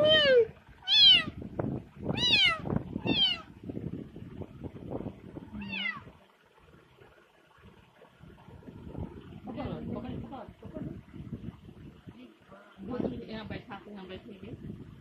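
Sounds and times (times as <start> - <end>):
kitten meowing: 0.8 - 1.3, 2.2 - 3.4, 5.6 - 6.1.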